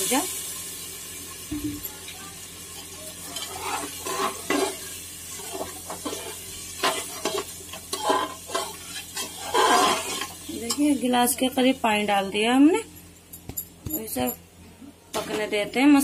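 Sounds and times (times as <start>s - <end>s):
spices sizzling in oil: 0.0s - 13.8s
metal spoon scraping a pot: 3.3s - 4.8s, 5.4s - 10.8s.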